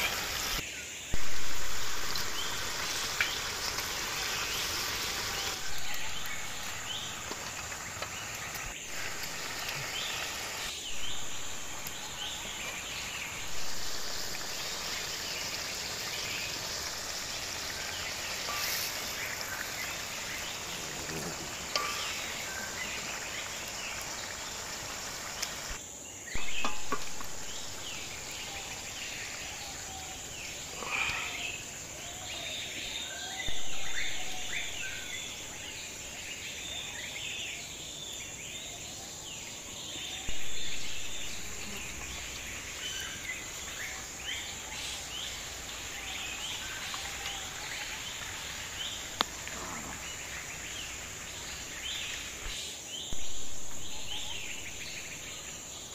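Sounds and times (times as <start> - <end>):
high insect drone: 0.0 - 55.9
bird chirps: 32.4 - 37.6, 39.9 - 55.9.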